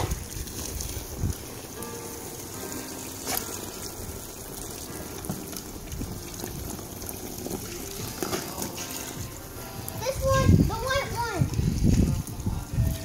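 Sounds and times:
water gushing from hose: 0:00.0 - 0:13.0.

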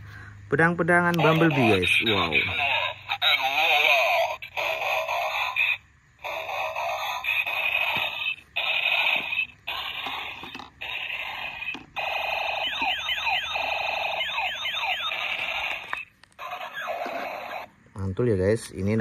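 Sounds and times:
buzzy electronic alarm tones: 0:06.4 - 0:17.7.

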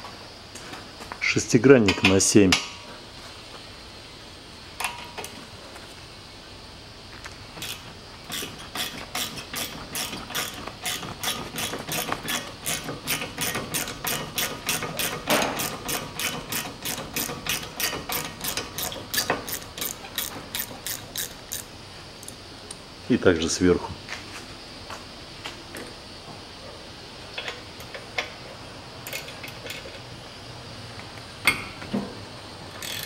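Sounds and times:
ratchet wrench clicking: 0:07.6 - 0:22.4, 0:32.8 - 0:33.0.

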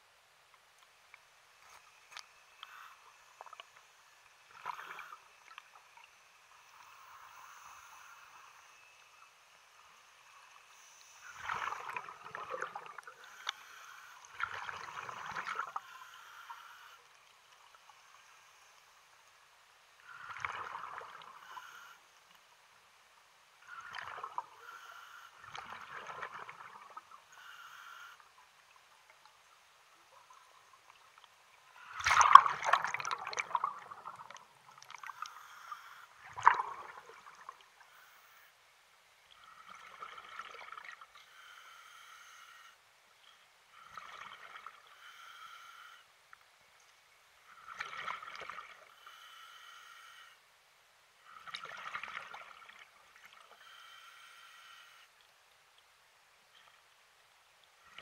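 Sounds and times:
water splashing and trickling: 0:11.2 - 0:13.4, 0:14.3 - 0:15.9, 0:20.0 - 0:21.4, 0:23.6 - 0:24.6, 0:25.4 - 0:27.3, 0:28.6 - 0:35.3, 0:36.2 - 0:37.8, 0:39.3 - 0:41.2, 0:43.8 - 0:44.9, 0:47.5 - 0:49.0, 0:51.3 - 0:53.6.

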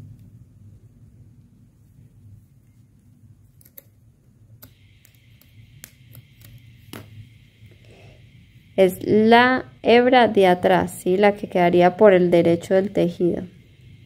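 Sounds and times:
low room hum: 0:00.0 - 0:14.0
knitting needles clicking: 0:03.5 - 0:07.0.

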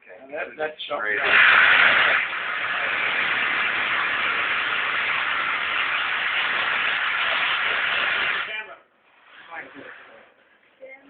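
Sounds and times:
reciprocating saw cutting: 0:01.2 - 0:08.6.

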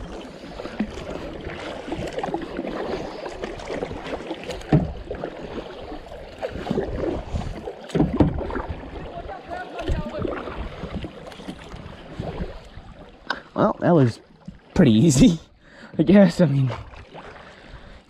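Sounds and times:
paddle splashing in water: 0:00.0 - 0:15.4, 0:16.5 - 0:18.0
water swishing along hull: 0:00.0 - 0:18.0
loud splashes or knocks: 0:03.6 - 0:05.7, 0:06.4 - 0:09.1.

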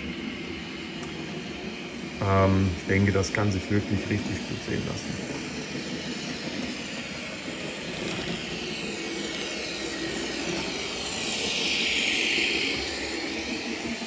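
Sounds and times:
model train running on track: 0:00.0 - 0:14.0.

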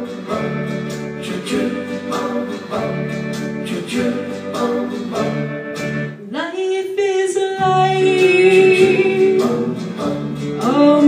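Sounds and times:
strummed guitar: 0:00.0 - 0:06.4, 0:07.6 - 0:11.0
woman singing: 0:06.2 - 0:09.8, 0:10.6 - 0:11.0.

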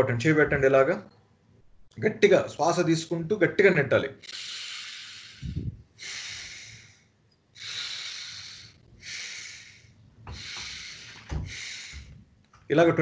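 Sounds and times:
person breathing forcefully: 0:04.2 - 0:12.4.

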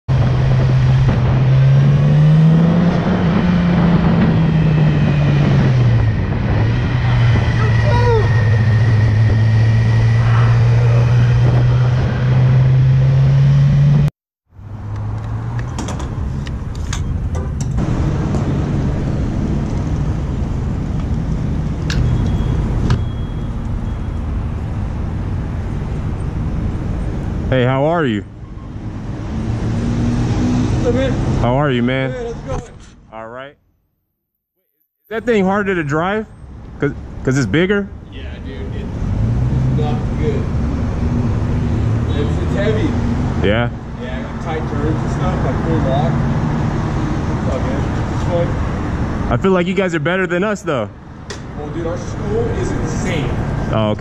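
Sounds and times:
road traffic rumble: 0:00.1 - 0:33.6, 0:35.1 - 0:54.0
faint beep: 0:22.0 - 0:24.4.

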